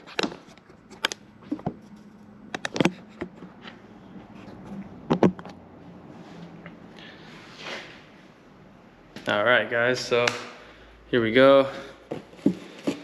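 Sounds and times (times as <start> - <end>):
tools and parts knocking and clinking: 0.0 - 3.8, 5.0 - 5.6.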